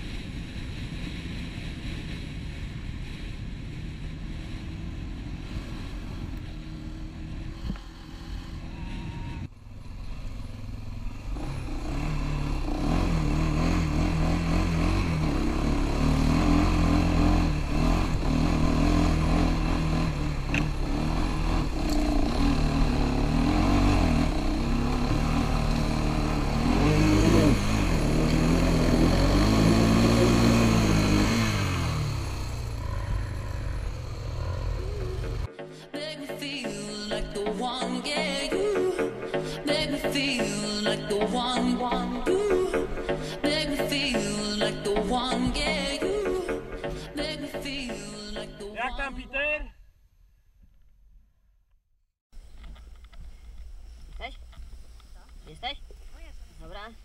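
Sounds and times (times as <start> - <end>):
quad engine revving: 4.3 - 35.5.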